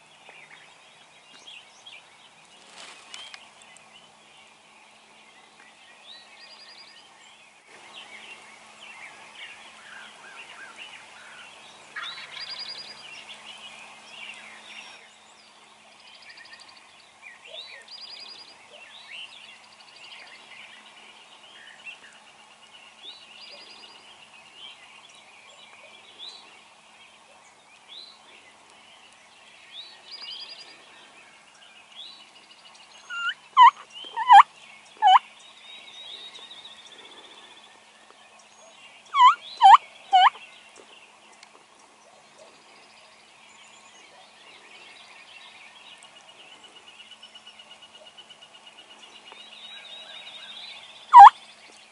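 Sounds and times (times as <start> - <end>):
songbirds chirping and trilling: 0.0 - 51.9
wild turkey calls: 9.8 - 13.0, 33.0 - 35.2, 39.1 - 40.4, 51.1 - 51.4.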